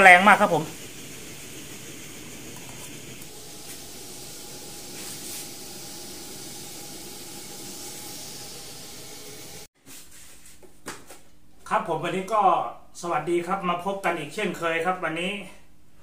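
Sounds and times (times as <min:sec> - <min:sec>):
camp stove hissing: 0:00.0 - 0:09.7.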